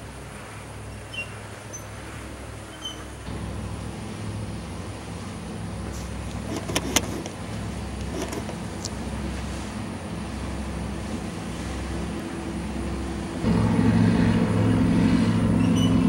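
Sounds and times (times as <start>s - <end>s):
motor engine droning: 0.8s - 16.0s.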